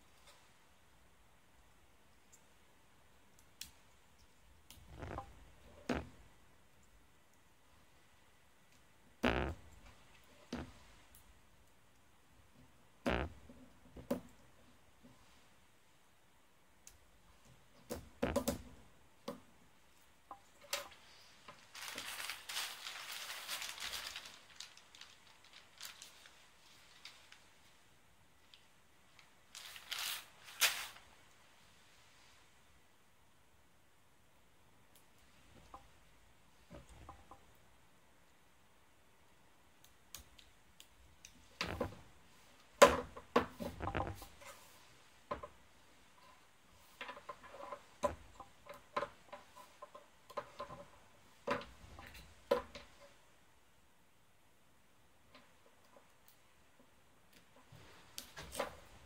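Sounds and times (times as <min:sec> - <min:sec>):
plastic bag crinkling: 0:21.6 - 0:27.6, 0:29.5 - 0:31.0.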